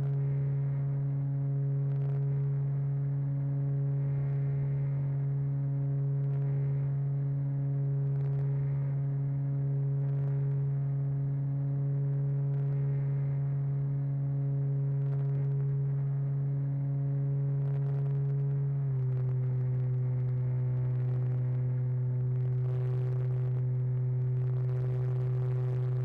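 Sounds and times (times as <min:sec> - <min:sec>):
model airplane motor humming drone: 0:14.3 - 0:26.0.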